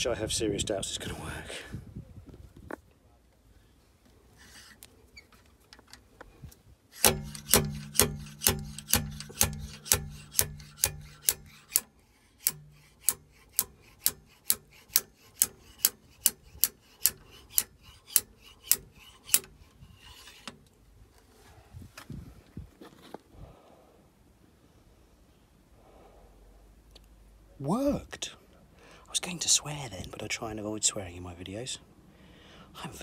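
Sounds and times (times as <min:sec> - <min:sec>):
slide hammer blows on metal: 0:06.9 - 0:20.3.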